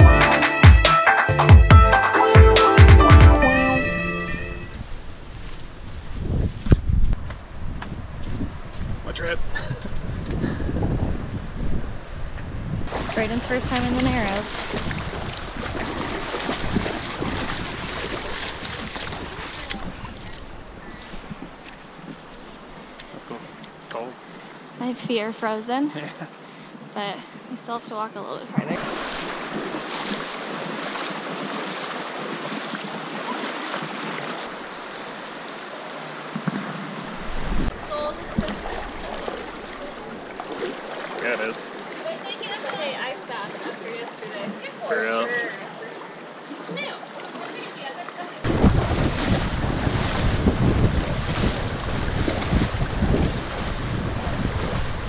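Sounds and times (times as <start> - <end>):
wind buffeting microphone: 4.7 - 22.8, 36.3 - 40.9, 48.4 - 55.0
water splashing around wading legs: 12.9 - 25.2, 28.5 - 55.0.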